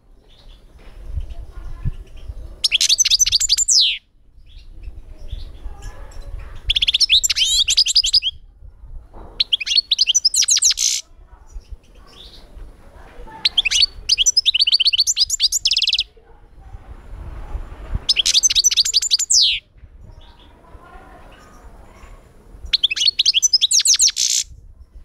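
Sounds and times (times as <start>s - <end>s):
goldfinch twittering song: 2.2s - 5.6s, 6.6s - 8.3s, 9.4s - 11.0s, 13.4s - 16.0s, 18.1s - 19.6s, 22.7s - 24.5s.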